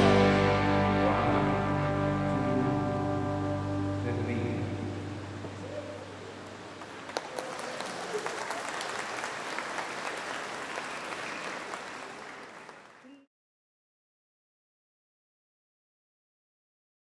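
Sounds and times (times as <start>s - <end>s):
crowd applauding: 6.7s - 13.3s.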